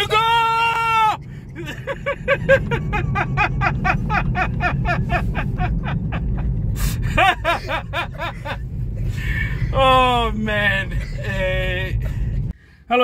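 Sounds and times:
car cabin road rumble: 0:00.0 - 0:13.0
man laughing hard: 0:01.0 - 0:10.1.

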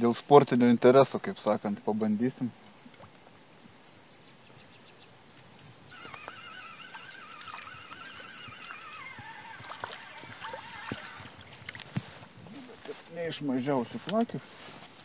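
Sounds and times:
fishing reel gears whining: 0:05.9 - 0:11.4.

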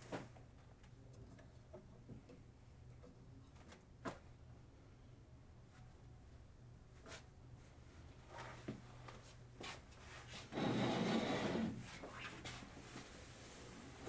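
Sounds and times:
soft handling clicks and knocks: 0:00.2 - 0:04.3
rubbing scraping sound: 0:10.3 - 0:12.6.

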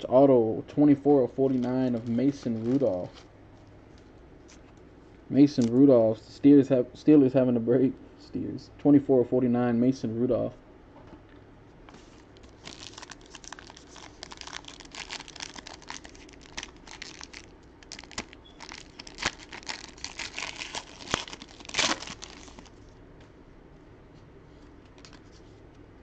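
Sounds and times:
plastic wrapping crinkling and tearing: 0:01.4 - 0:03.3, 0:12.2 - 0:22.8.

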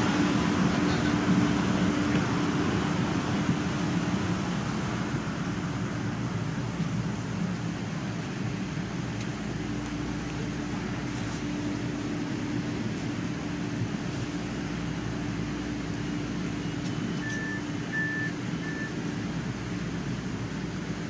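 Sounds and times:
subway train rumble: 0:00.0 - 0:21.0
short high beeps: 0:17.1 - 0:19.0.

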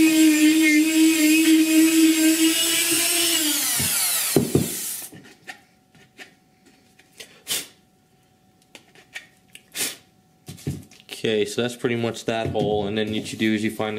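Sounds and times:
rotary tool whine: 0:00.0 - 0:05.2.

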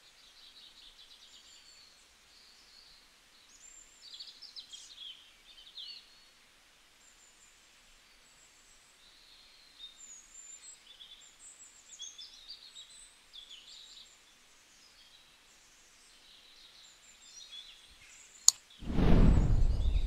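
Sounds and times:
low hiss: 0:18.8 - 0:20.0.

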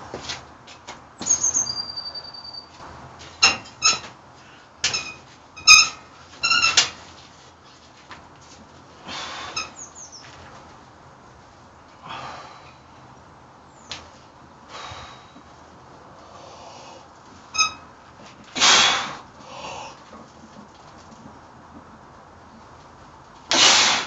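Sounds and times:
forceful hissing breaths: 0:09.0 - 0:09.8, 0:12.0 - 0:13.0, 0:14.7 - 0:15.5, 0:16.2 - 0:17.1, 0:18.6 - 0:20.0, 0:23.5 - 0:24.0.

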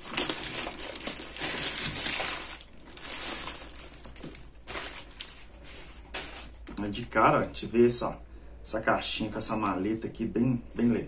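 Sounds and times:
packaging tearing and crinkling: 0:00.0 - 0:06.6.

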